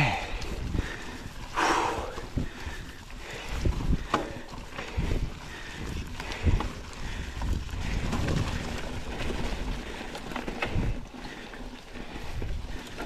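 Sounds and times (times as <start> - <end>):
bike tyres rolling through leaves: 0.0 - 13.0
bike knocking over bumps: 3.9 - 4.9.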